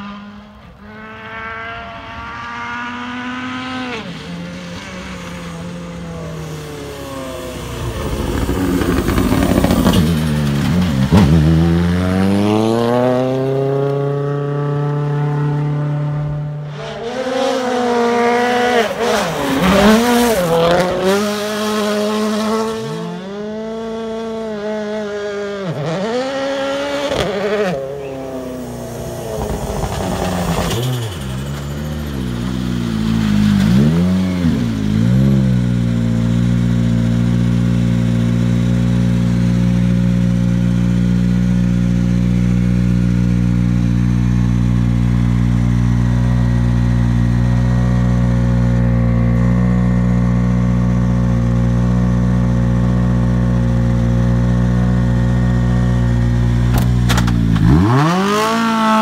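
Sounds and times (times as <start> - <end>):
car engine revving: 0.0 - 59.0
rally car engine accelerating: 0.0 - 59.0
car driving on gravel: 4.1 - 13.1, 26.7 - 38.3, 42.3 - 59.0
car engine idling: 27.8 - 33.4.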